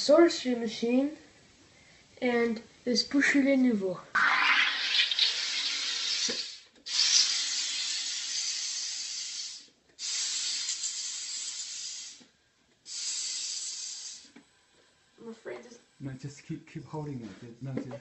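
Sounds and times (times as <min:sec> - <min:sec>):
gas hissing into bottle: 0:04.1 - 0:14.5.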